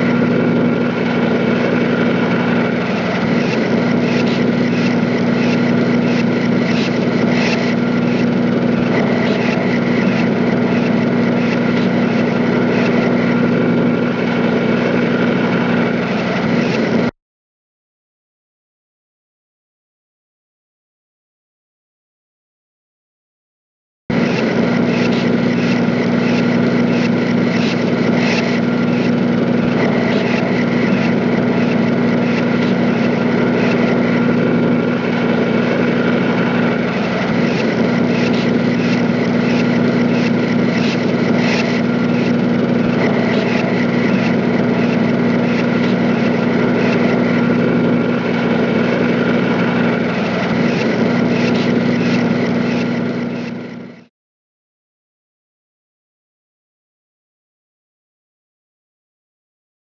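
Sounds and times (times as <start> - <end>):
high steady machine tones: 0.0 - 17.1, 24.1 - 54.1
machinery drone with low hum: 0.0 - 17.1, 24.1 - 54.1.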